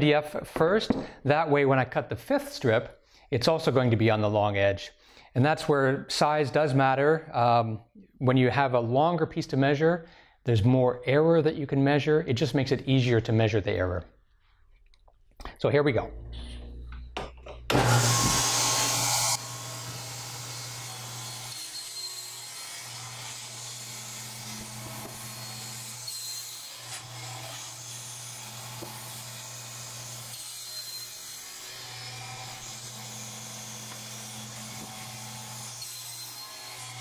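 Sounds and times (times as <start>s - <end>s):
table saw cutting: 17.7s - 37.0s.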